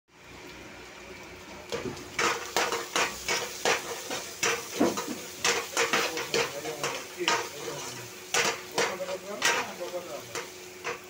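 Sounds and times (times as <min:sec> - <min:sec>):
metal utensil scraping metal pan: 0:02.2 - 0:11.0.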